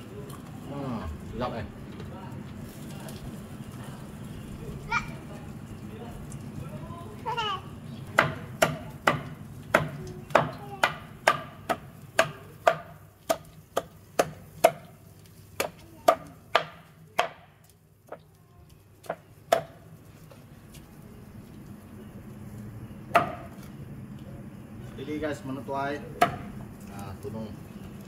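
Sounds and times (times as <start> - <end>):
cleaver chopping on wooden board: 8.2 - 14.9, 15.6 - 17.5, 19.0 - 19.8, 23.1 - 23.5, 26.2 - 26.5.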